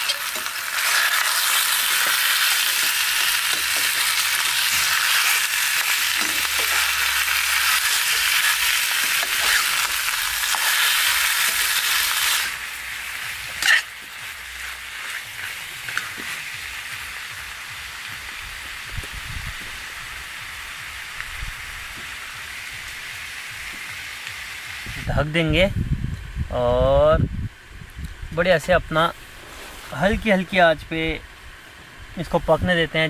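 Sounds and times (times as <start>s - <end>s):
metal spatula stirring: 0.0s - 12.5s, 13.5s - 14.0s
chicken sizzling in oil: 0.0s - 25.1s.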